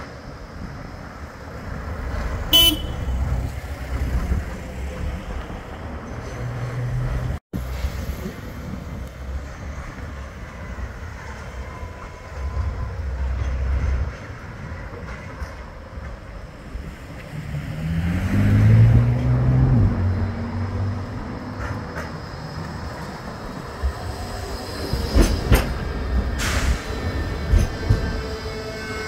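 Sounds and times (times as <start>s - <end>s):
street traffic rumbling: 0.0s - 29.0s
car horn toot: 2.5s - 3.2s.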